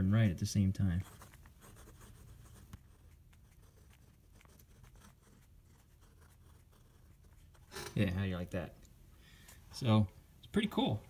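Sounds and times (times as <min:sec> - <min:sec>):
pen nib scratching on paper: 0:01.0 - 0:08.0.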